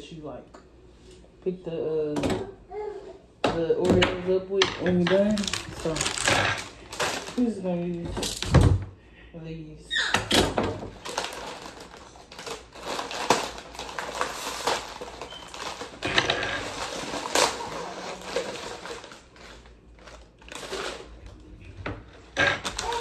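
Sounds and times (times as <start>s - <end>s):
plastic package crinkling: 5.1s - 7.6s, 10.9s - 21.5s, 22.1s - 23.0s.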